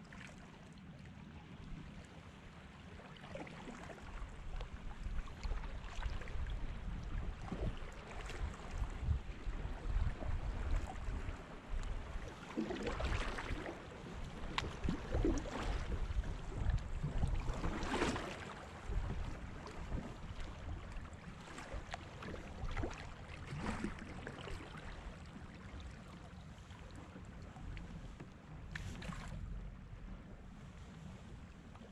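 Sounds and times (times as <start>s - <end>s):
paddle splashing in water: 3.1s - 30.2s
wind on microphone: 4.3s - 24.2s.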